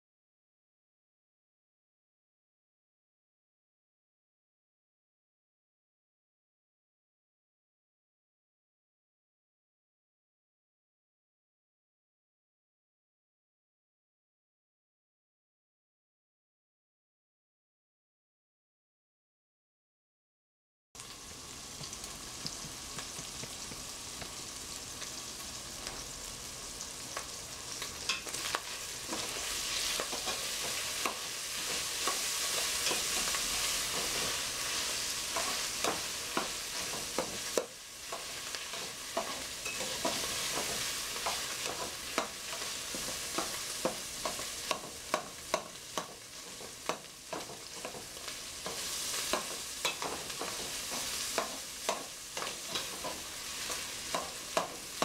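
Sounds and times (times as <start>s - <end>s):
sausage sizzling in a pot: 21.0s - 55.0s
utensil scraping and clicking on pot: 28.1s - 34.3s, 35.2s - 54.8s.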